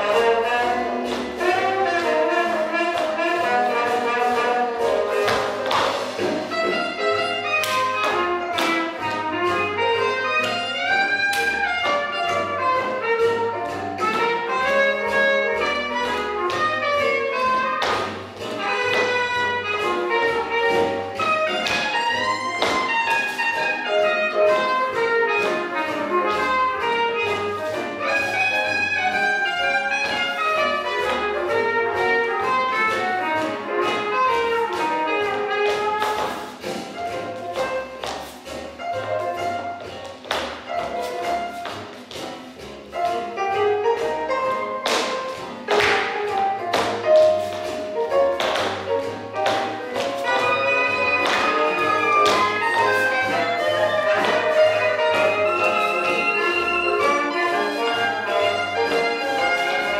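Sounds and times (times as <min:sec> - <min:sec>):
swing jazz music: 0:00.0 - 0:59.9.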